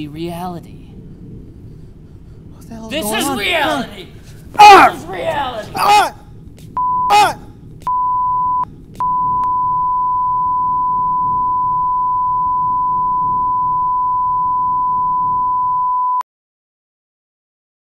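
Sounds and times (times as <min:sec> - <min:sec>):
low rumble of noise: 0:00.0 - 0:15.2
steady test tone beep: 0:06.8 - 0:07.1, 0:07.9 - 0:16.2.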